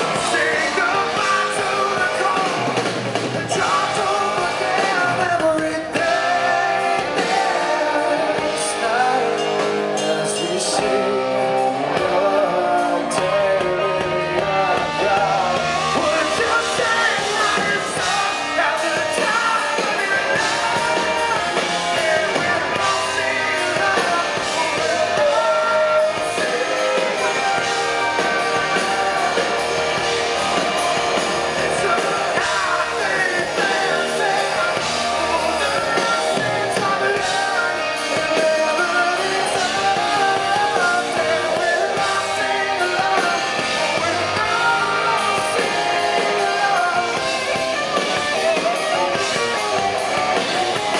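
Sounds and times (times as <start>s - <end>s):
man singing into a microphone: 0.0s - 47.7s
rock band guitars and drums: 0.0s - 50.9s.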